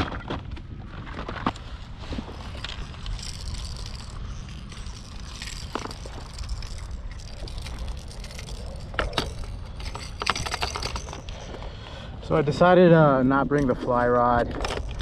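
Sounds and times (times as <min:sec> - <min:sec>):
wind rumbling on microphone: 0:00.3 - 0:15.0
gear clicks and knocks: 0:02.3 - 0:11.7, 0:13.5 - 0:15.0.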